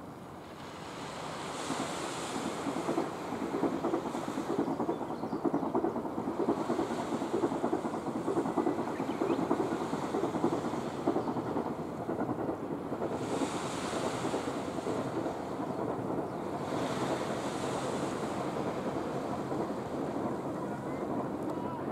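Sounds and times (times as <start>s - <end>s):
small waves washing onto sand: 0.0s - 21.9s
wind buffeting microphone: 0.8s - 21.9s.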